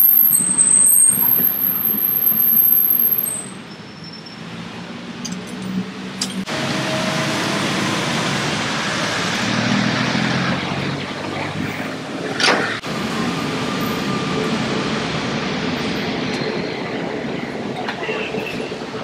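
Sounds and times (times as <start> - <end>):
passing cars rushing: 4.4 - 19.0.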